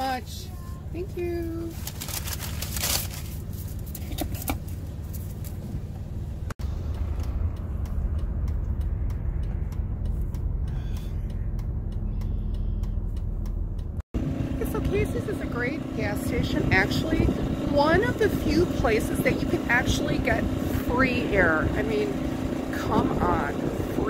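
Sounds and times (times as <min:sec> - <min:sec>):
car engine rumbling: 0:00.0 - 0:24.0
light ticks: 0:06.8 - 0:14.0.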